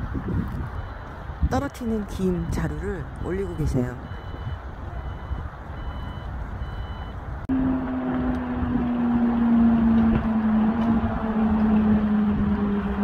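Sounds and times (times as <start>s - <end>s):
electronic warning beeps: 0.7s - 1.1s, 1.8s - 7.2s
engine drone with hum: 2.4s - 13.0s.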